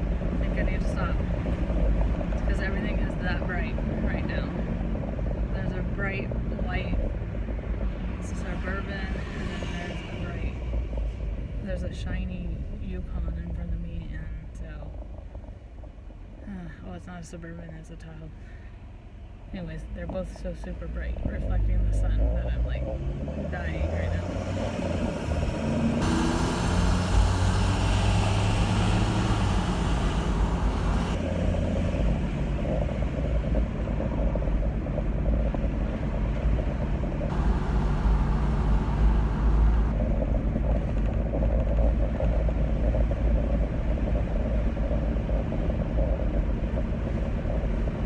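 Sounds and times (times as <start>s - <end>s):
car engine low rumble: 0.0s - 48.0s
rising engine hum: 21.2s - 48.0s.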